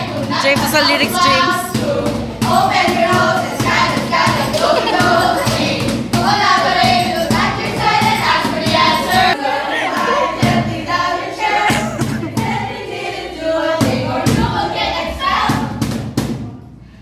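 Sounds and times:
box drum beat: 0.0s - 9.4s, 11.7s - 13.0s
group of young people singing: 0.0s - 16.0s.

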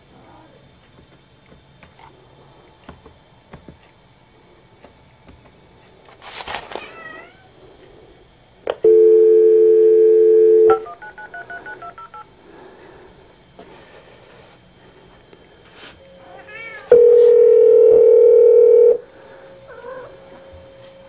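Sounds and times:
dial tone: 8.8s - 12.3s, 16.9s - 19.0s
cat meowing: 16.3s - 17.0s, 19.7s - 20.2s.

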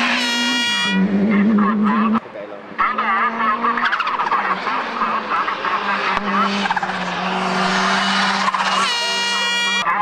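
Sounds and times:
rally car engine revving: 0.0s - 10.0s.

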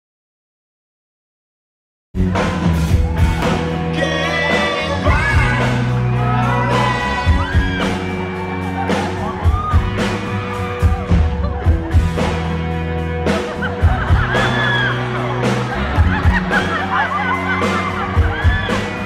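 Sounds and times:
live band playing: 2.2s - 19.0s
crowd whoops and shouts: 2.8s - 11.8s, 13.5s - 19.0s
person singing: 3.4s - 9.7s.

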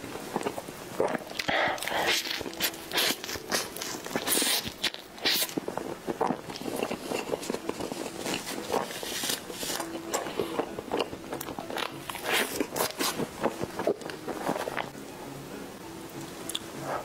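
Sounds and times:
chewing and lip smacking: 0.4s - 14.9s.

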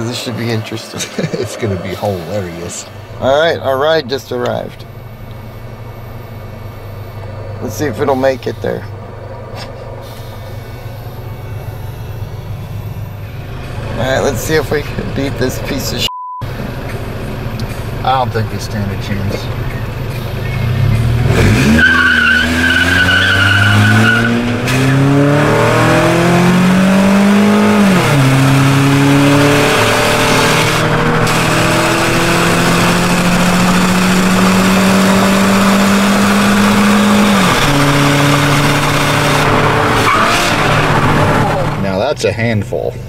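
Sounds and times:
car engine accelerating: 0.0s - 43.0s.

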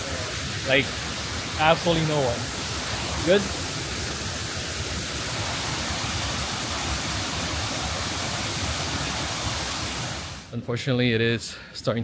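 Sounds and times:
waterfall rushing into pool: 0.0s - 10.5s.

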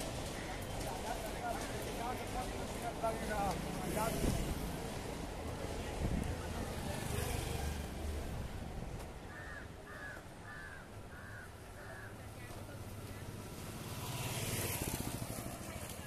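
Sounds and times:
low street rumble: 0.0s - 16.0s
crow cawing: 9.3s - 12.2s.

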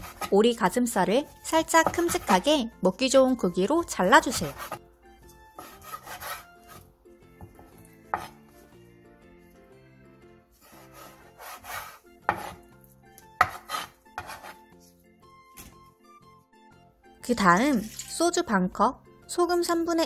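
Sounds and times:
knife slicing meat: 0.0s - 0.4s, 5.5s - 8.4s, 10.6s - 14.8s
soft background music: 0.0s - 20.0s.

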